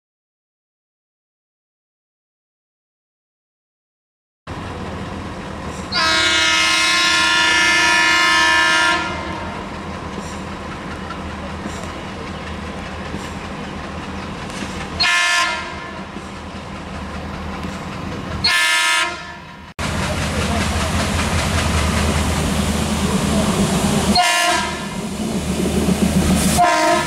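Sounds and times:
train running noise: 0:04.5 - 0:27.0
locomotive horn blasts: 0:05.9 - 0:09.7, 0:15.0 - 0:16.1, 0:18.4 - 0:19.7, 0:24.1 - 0:25.0, 0:26.5 - 0:27.0.

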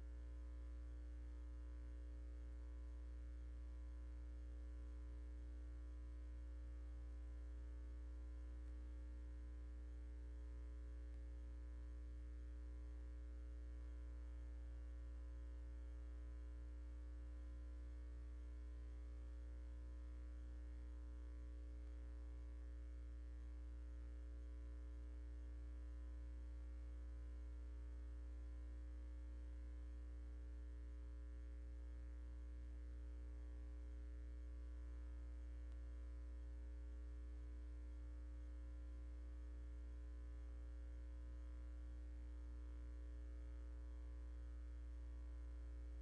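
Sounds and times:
mains hum: 0:00.0 - 0:46.0.

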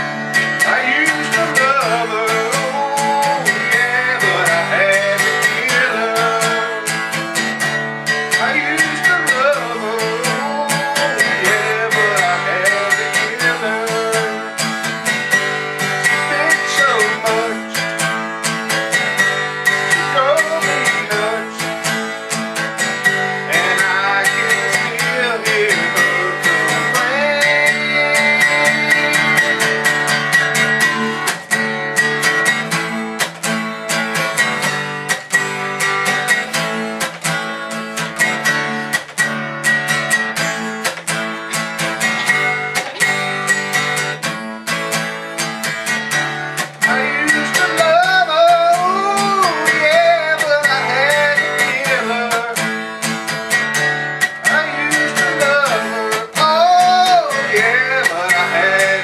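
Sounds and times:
person singing: 0:00.0 - 0:07.6, 0:08.3 - 0:15.0, 0:16.0 - 0:18.1, 0:19.7 - 0:22.1, 0:23.2 - 0:31.4, 0:46.6 - 0:52.8, 0:54.2 - 0:59.0
acoustic guitar strumming: 0:00.0 - 0:59.0.

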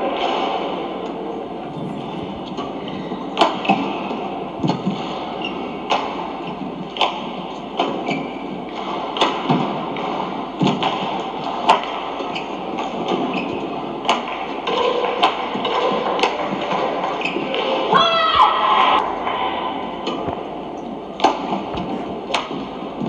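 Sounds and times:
arena hum: 0:00.7 - 0:06.3.

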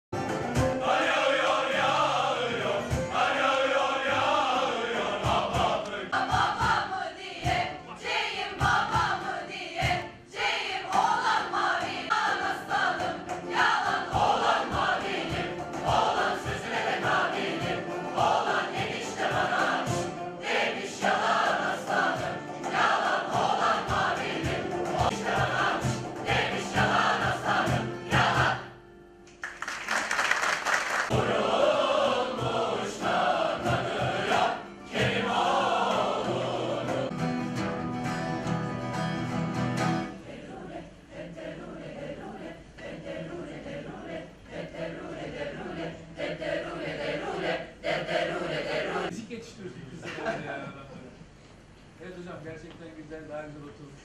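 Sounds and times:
acoustic guitars: 0:00.1 - 0:29.4, 0:31.1 - 0:40.6
cajon beating rhythm: 0:00.2 - 0:28.8, 0:29.4 - 0:40.1
mixed choir singing: 0:00.2 - 0:28.9, 0:30.5 - 0:37.9, 0:38.9 - 0:49.1.

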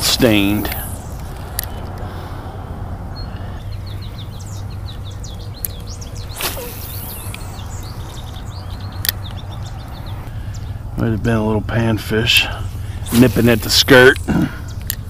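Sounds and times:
birds chirping: 0:00.0 - 0:15.0
fishing rod whooshing: 0:06.3 - 0:08.3, 0:13.0 - 0:14.1.

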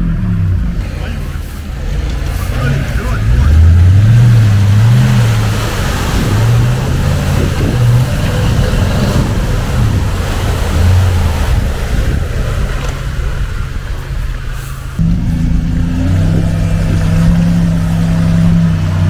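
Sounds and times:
truck engine revving: 0:00.0 - 0:19.0
tyres spraying mud and water: 0:00.0 - 0:19.0.

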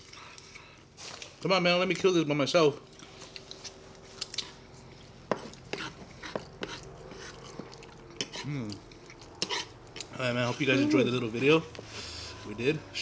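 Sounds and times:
chewing and mouth noises: 0:00.0 - 0:01.3, 0:02.8 - 0:10.7
person humming: 0:08.4 - 0:08.8, 0:10.7 - 0:11.2.

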